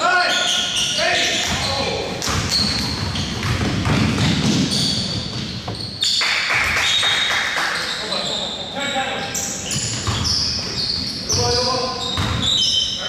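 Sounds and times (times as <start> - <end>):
sneaker squeaks: 0.0 - 13.0
basketball thuds: 1.4 - 5.8
players' feet on court: 1.4 - 5.9.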